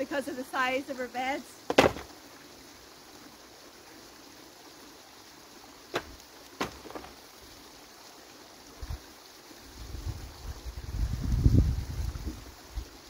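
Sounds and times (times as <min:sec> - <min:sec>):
faint steady hiss: 0:00.0 - 0:13.0
sharp knocks: 0:01.7 - 0:02.1, 0:05.9 - 0:07.1.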